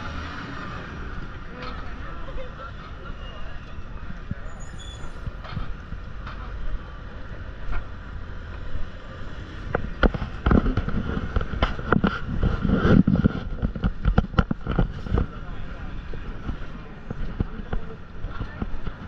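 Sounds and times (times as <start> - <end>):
low traffic rumble: 0.0 - 19.0
sharp clicks and knocks: 9.6 - 15.4.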